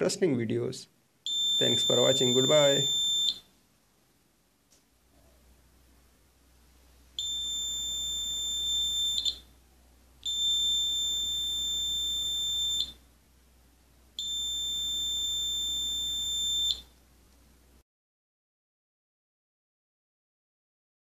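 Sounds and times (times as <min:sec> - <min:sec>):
high-pitched alarm beeps: 0:01.3 - 0:03.5, 0:07.2 - 0:09.5, 0:10.2 - 0:13.0, 0:14.2 - 0:16.9.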